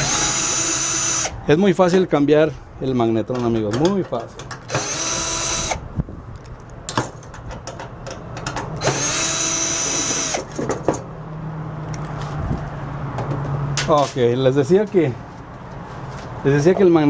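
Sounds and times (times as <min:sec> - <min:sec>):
cordless drill whining: 0:00.0 - 0:01.4, 0:04.7 - 0:05.8, 0:08.8 - 0:10.5.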